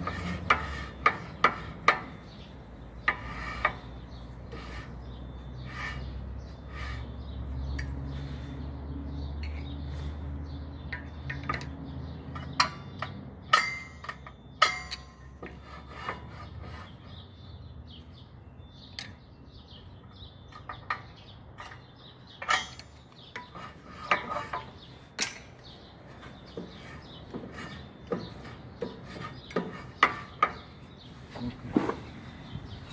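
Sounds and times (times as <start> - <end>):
metallic clicks and scraping: 20.5 - 30.7.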